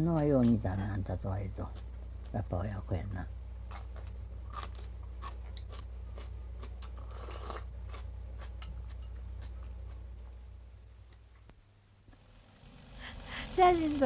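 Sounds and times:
low hum: 0.0 - 14.0
crisp crunching chewing: 3.7 - 10.0.

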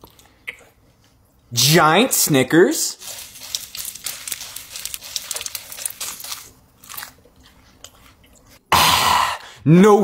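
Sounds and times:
wrapper crinkling: 3.0 - 7.2
candy bar crunching: 3.0 - 8.5.

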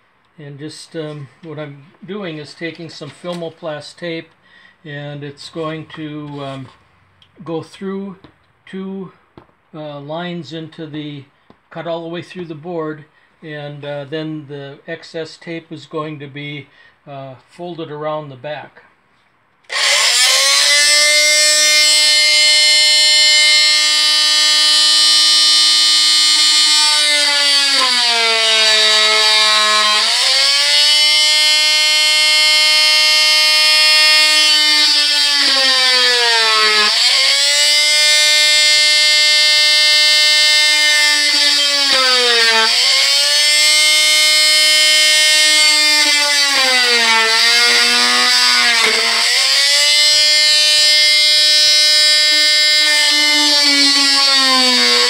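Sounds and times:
electric saw motor whine: 19.7 - 55.0.

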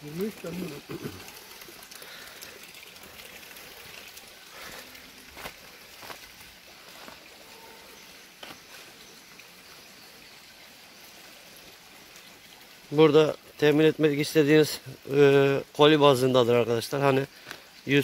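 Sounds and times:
running water rushing: 0.0 - 18.0.

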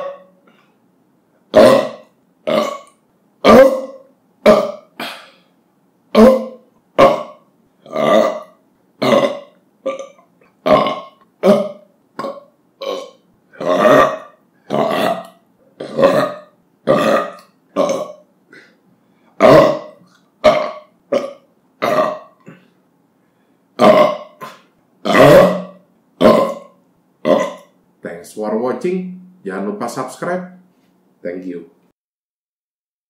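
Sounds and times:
man belching: 0.0 - 0.5, 1.5 - 5.4, 6.1 - 18.8, 19.4 - 22.8, 23.8 - 27.8.

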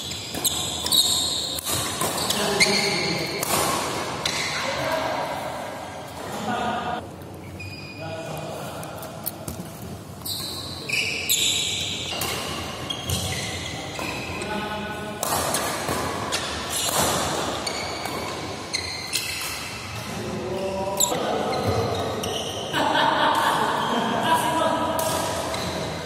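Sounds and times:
shoes squeaking on court: 0.0 - 3.4, 10.2 - 14.4, 15.5 - 19.8, 20.6 - 22.7
rackets hitting shuttlecock: 0.1 - 4.6, 15.2 - 18.5.

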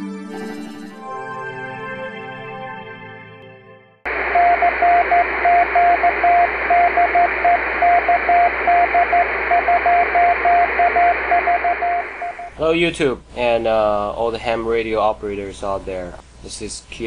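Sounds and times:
morse code tone: 4.1 - 12.6
radio static: 4.1 - 12.6.

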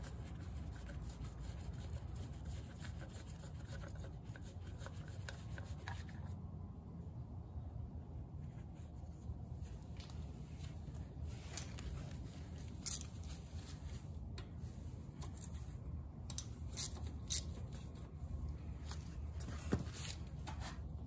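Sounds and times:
low steady hum: 0.0 - 21.0
tool handling noise: 11.4 - 15.6.

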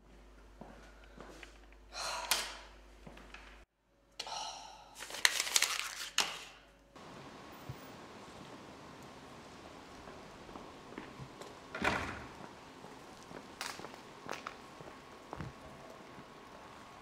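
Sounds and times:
paper crinkling: 5.0 - 6.6
paper and tape crackling: 5.0 - 6.7, 12.5 - 16.8.

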